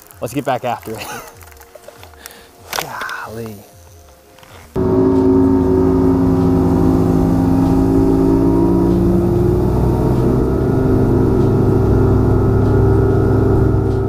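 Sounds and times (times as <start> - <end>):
outboard motor running: 4.8 - 14.0.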